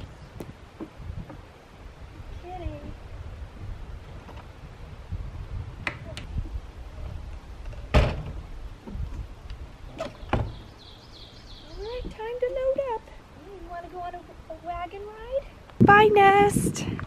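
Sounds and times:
screen door banging shut: 7.8s - 8.4s, 10.0s - 10.7s.

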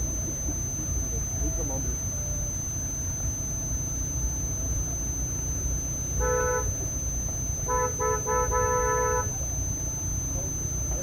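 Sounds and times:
low rumble of car moving: 0.0s - 11.0s
car horn toots: 6.2s - 6.8s, 7.6s - 9.3s.

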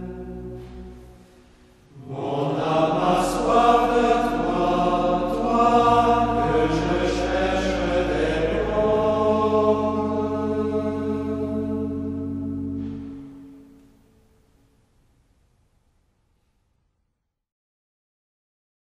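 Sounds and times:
sung religious chant: 0.0s - 13.6s
low drone note: 0.0s - 14.0s.

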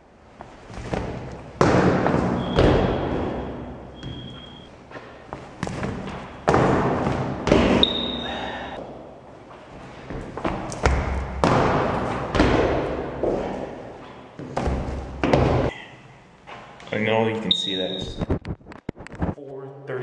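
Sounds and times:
sneakers stomping on tile: 0.8s - 4.6s, 10.1s - 13.6s
rubber sneaker squeaks: 2.4s - 4.7s, 7.8s - 8.3s.

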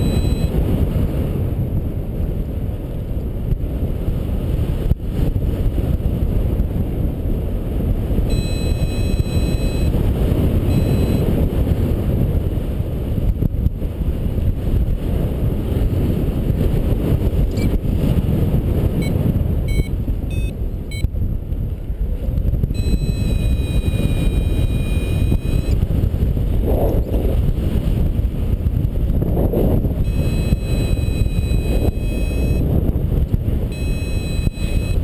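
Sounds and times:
variometer tones and pips: 0.0s - 0.6s, 8.3s - 11.3s, 19.0s - 21.2s, 22.7s - 25.9s, 30.0s - 32.7s, 33.6s - 35.0s
wind rushing over microphone: 0.0s - 35.0s.

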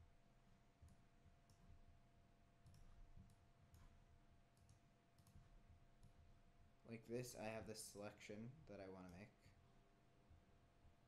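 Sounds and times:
computer mouse clicks: 2.6s - 4.0s, 4.6s - 6.2s.

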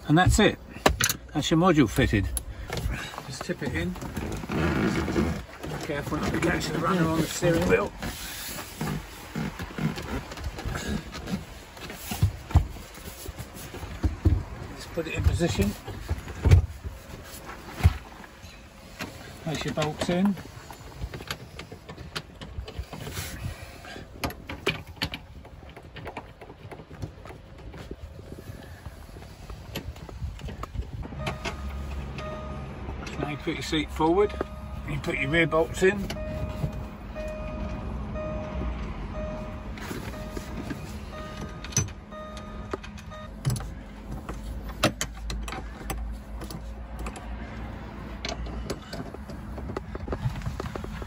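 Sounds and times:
bolts clicking and knocking: 0.0s - 8.0s, 29.7s - 51.0s
sharp clicks and knocks of bolts: 41.4s - 47.6s.

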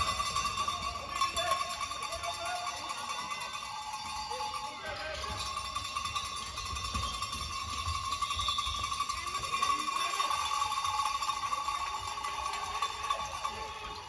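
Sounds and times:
high ringing tone: 2.8s - 11.9s.

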